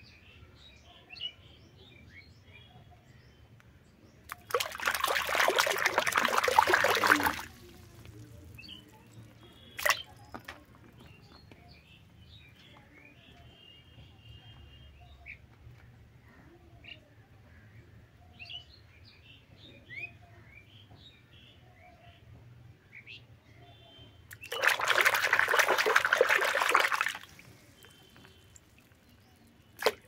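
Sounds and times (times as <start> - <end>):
water splashing in a basin: 4.3 - 10.7, 24.3 - 30.0.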